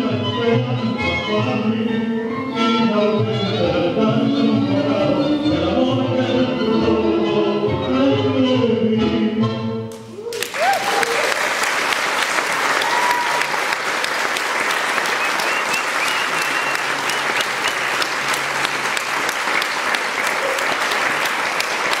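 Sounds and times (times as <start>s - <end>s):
audience applauding: 10.0s - 22.0s.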